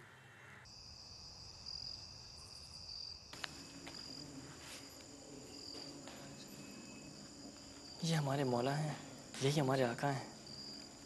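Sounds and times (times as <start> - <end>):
faint crickets chirping: 0.2 - 11.0.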